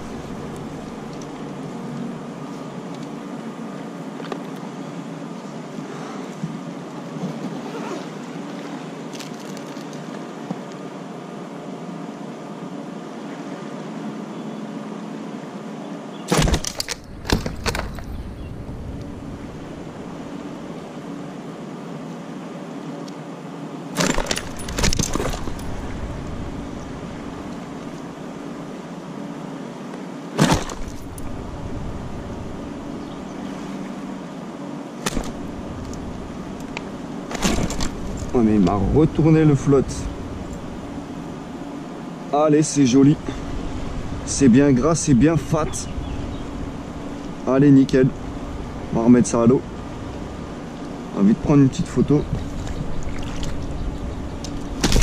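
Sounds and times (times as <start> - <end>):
low background hum: 0.0 - 55.0
sharp knocks with clatter: 16.3 - 18.1, 24.0 - 25.6, 30.4 - 31.0, 54.8 - 55.0
fish thrashing in net: 24.0 - 25.6, 30.4 - 31.1, 37.3 - 38.3, 54.7 - 55.0.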